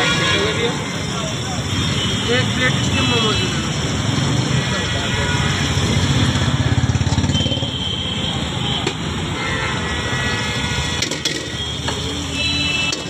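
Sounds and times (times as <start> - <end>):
street traffic: 0.0 - 13.0
motorcycle engine rumbling: 5.5 - 7.9.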